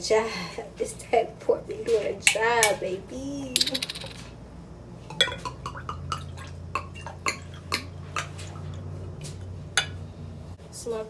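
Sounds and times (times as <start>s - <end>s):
wine glugging from bottle: 5.1s - 8.9s.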